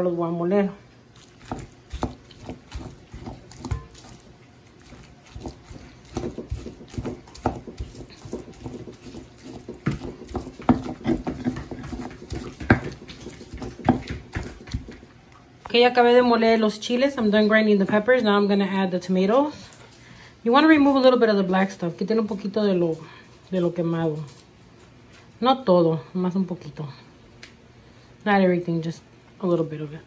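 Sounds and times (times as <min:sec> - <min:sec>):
stone pestle grinding in mortar: 0:01.4 - 0:15.0.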